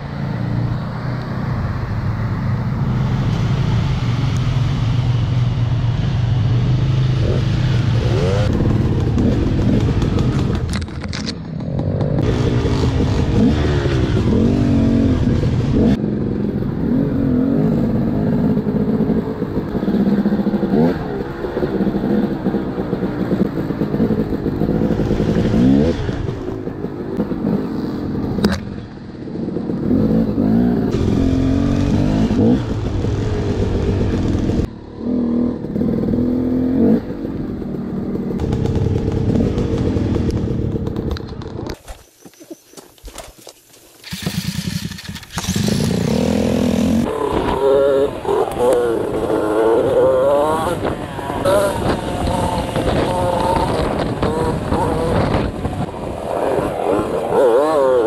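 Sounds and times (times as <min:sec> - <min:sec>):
dirt bike engine revving: 0:06.7 - 0:10.5, 0:12.0 - 0:16.0, 0:29.8 - 0:37.3, 0:44.0 - 0:58.0.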